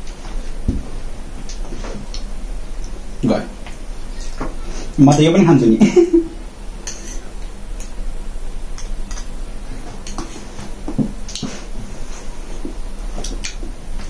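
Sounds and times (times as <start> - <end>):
steady low hum: 0.0 - 14.0
soft eating sounds: 6.7 - 14.0
forks tapping plates: 6.8 - 7.3.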